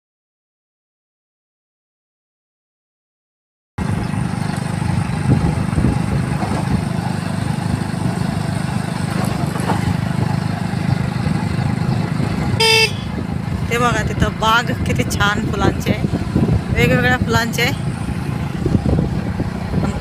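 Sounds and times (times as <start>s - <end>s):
motorcycle engine running: 3.8s - 20.0s
wind buffeting microphone: 3.8s - 20.0s
short pitched sound: 12.5s - 13.2s.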